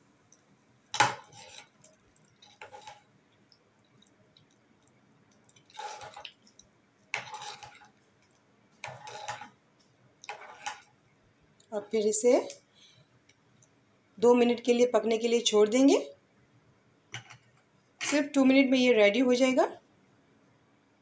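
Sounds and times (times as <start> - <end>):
spoon scraping metal pot: 1.0 - 3.1, 5.6 - 6.4, 7.1 - 8.0, 8.8 - 9.6, 10.2 - 10.9
spoon stirring thick curry: 1.0 - 11.0.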